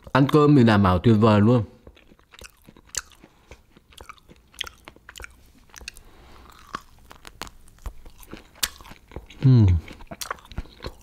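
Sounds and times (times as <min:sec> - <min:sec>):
person chewing crunchy food: 0:00.0 - 0:00.3, 0:01.8 - 0:11.0
wet mouth clicks: 0:01.9 - 0:06.0.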